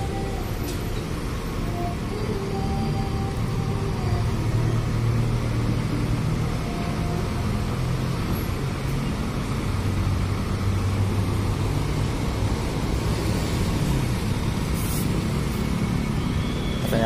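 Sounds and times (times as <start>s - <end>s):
bus diesel engine drone: 0.0s - 17.0s.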